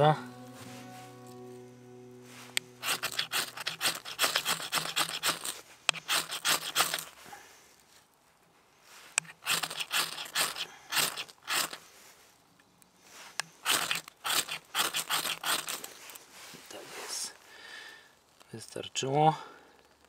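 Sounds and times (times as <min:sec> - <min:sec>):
knife scraping ferrocerium rod: 0:02.8 - 0:07.2, 0:09.2 - 0:11.8, 0:13.6 - 0:15.9.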